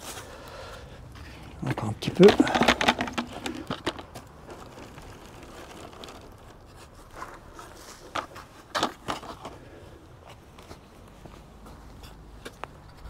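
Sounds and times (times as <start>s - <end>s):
sieve scraping: 1.2s - 8.4s
compost rustling in sieve: 1.4s - 8.2s.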